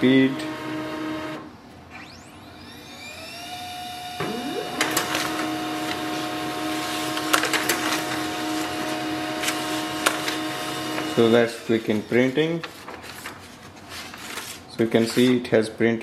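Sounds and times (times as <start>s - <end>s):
printer motor whine: 0.0s - 12.8s
second rising sound: 4.2s - 5.9s
paper feed clicking and rattling: 4.8s - 15.4s.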